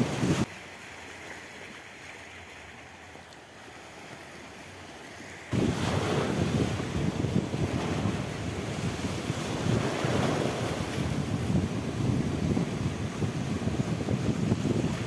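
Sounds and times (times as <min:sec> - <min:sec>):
wind buffeting the microphone: 0:00.0 - 0:00.5, 0:05.5 - 0:15.0
waves washing on shore: 0:00.0 - 0:15.0.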